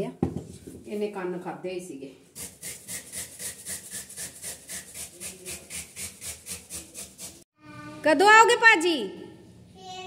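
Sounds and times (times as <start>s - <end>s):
radish rasping on hand grater: 2.4s - 7.4s.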